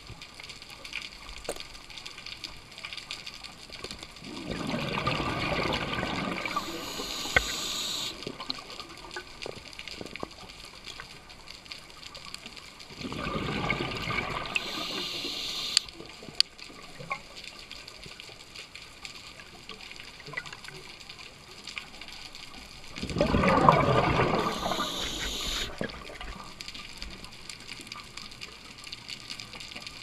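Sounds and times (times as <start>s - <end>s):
rush of exhaled bubbles: 4.2s - 8.4s, 12.9s - 15.2s, 22.9s - 26.5s
sharp clicks: 6.6s - 8.2s, 14.5s - 15.9s, 24.4s - 25.7s
diver breathing through regulator: 24.2s - 25.7s.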